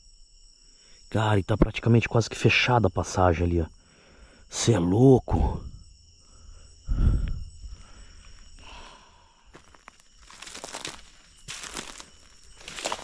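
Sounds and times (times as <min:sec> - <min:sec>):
footsteps through dry leaves: 0:09.5 - 0:13.0.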